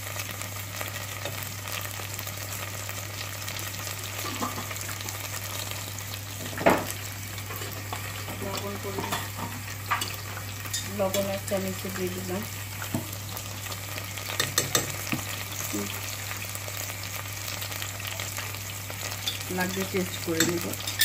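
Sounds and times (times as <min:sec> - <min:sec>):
masala sizzling in hot oil: 0:00.0 - 0:21.0.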